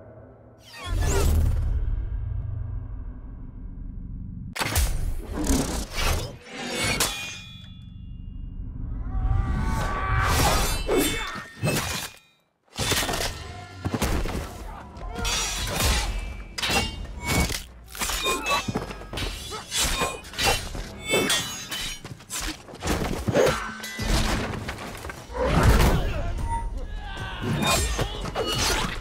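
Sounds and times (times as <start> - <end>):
swords clashing: 6.6 - 7.7, 10.4 - 13.6, 15.1 - 22.6
film music score: 12.8 - 29.0.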